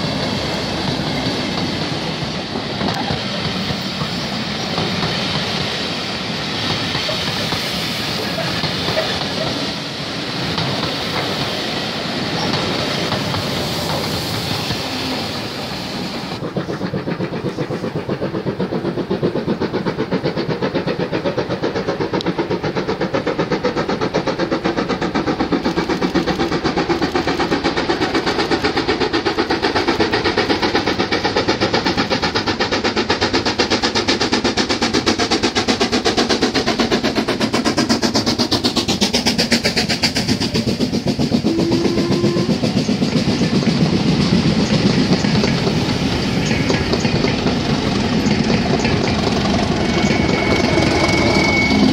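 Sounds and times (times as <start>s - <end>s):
steam locomotive exhaust beats: 0.0s - 51.9s
short steady whistle note: 49.7s - 51.9s.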